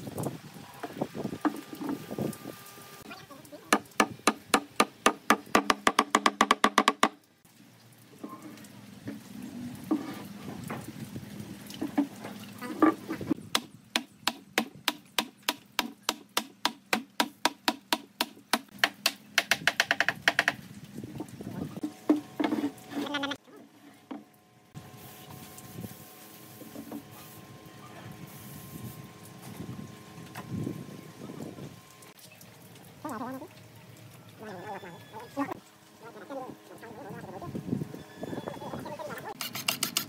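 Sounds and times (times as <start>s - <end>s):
wooden mallet knocking wood: 3.7s - 7.2s.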